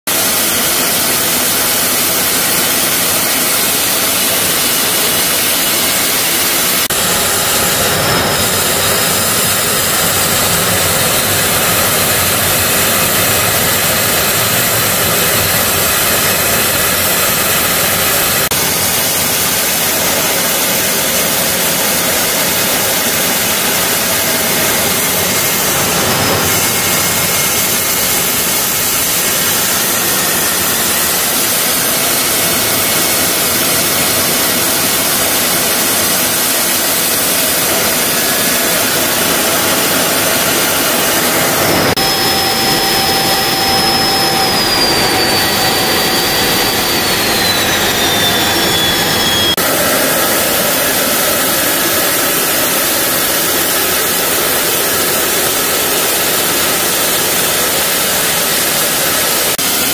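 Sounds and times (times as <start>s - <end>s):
jet engine and airflow rush: 0.1s - 59.9s
faint high whistle: 37.0s - 55.1s.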